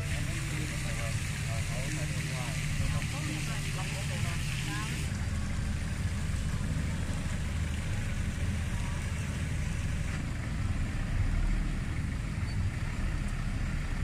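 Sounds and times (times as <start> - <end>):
low rumble: 5.0 - 14.0.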